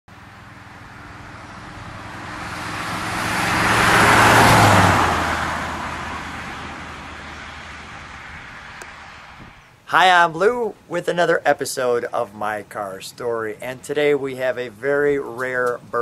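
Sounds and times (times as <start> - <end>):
car engine driving past: 0.2 - 9.7.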